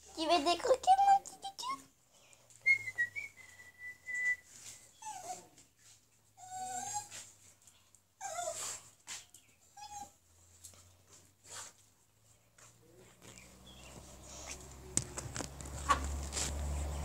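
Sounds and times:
small dog whining: 6.4 - 7.3, 8.2 - 8.8, 9.7 - 10.2.

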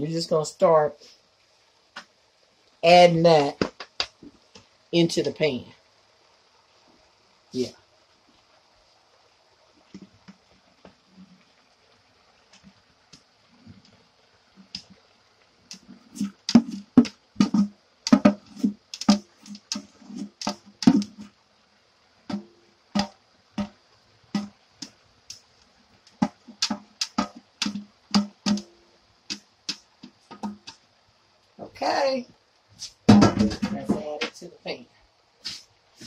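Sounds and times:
cooking pot knocked by hand: 15.7 - 21.3, 22.3 - 23.8, 24.4 - 24.6, 26.2 - 30.8, 33.1 - 34.0.

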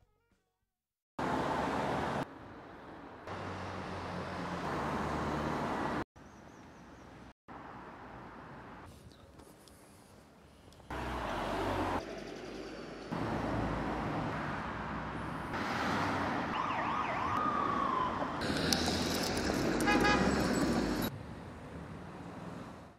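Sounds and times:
traffic rumble: 1.2 - 22.9
wavering siren wail: 16.5 - 18.4.

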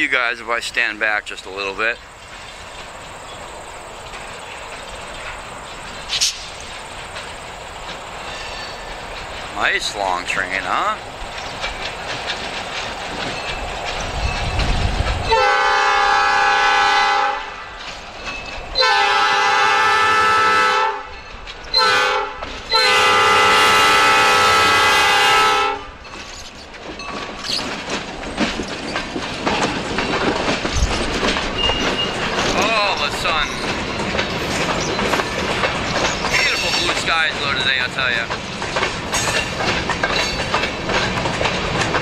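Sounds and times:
wheels clacking over rail joints: 0.0 - 42.0
locomotive air horn blasts: 15.3 - 17.6, 18.8 - 21.1, 21.8 - 25.9.

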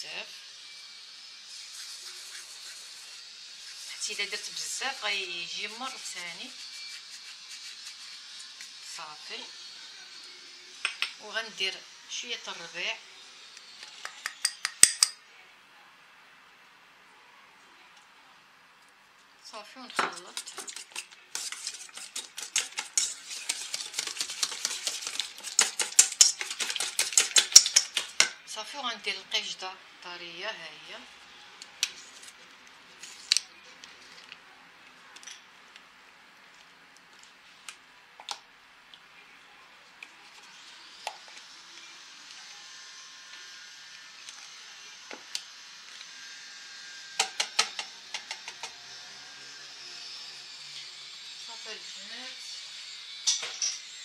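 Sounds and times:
whisk ticking against metal bowl: 20.4 - 28.3.

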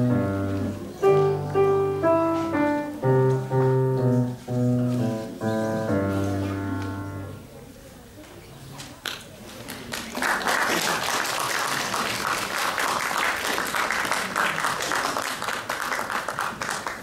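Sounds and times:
audience applauding: 9.6 - 17.0.

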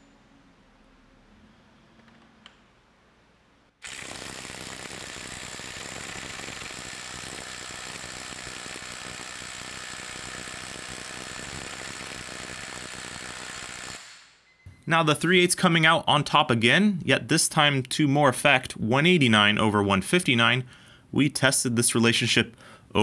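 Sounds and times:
impact driver hammering: 3.9 - 14.3.

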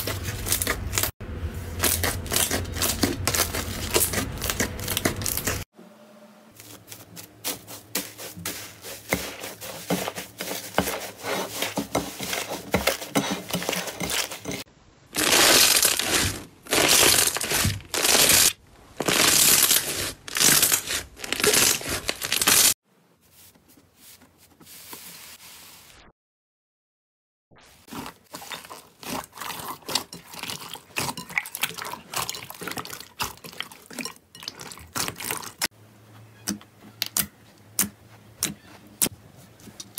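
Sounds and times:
slime squishing and stretching: 1.7 - 5.7, 15.1 - 22.8, 27.6 - 35.7
slime popping and squelching: 15.2 - 22.7
slime crackling: 15.2 - 22.8.

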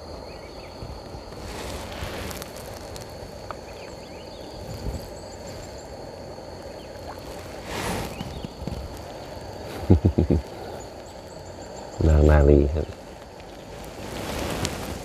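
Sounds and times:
paddle splash: 7.0 - 10.8.

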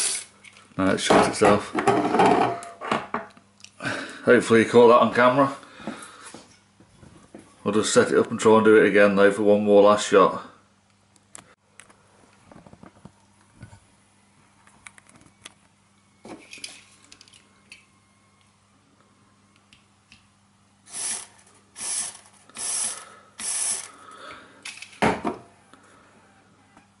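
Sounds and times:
aerosol spray hissing: 21.8 - 23.9.

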